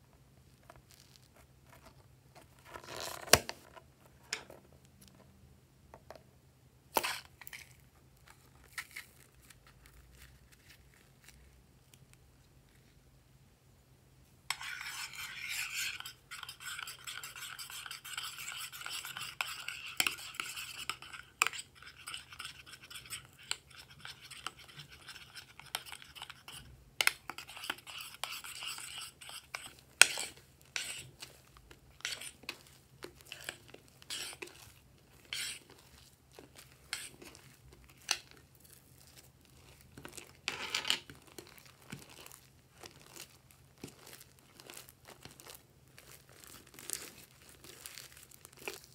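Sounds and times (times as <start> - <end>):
slime squelching: 14.6 - 40.5, 41.1 - 48.9.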